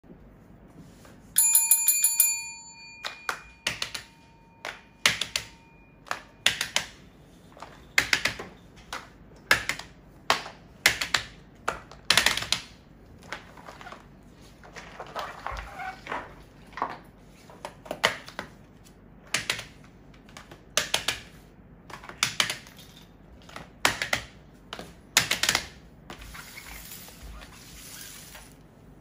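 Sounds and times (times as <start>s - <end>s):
bell-like chime: 1.4s - 6.0s.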